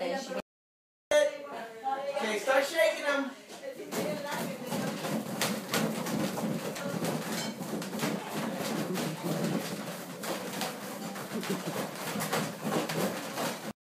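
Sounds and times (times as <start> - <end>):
balloons rustling and bumping: 3.8 - 13.8.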